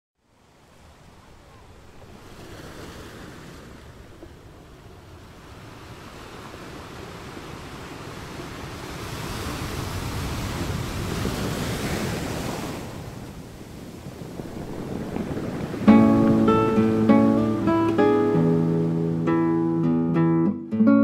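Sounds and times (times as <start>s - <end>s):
surf rushing: 0.3s - 20.3s.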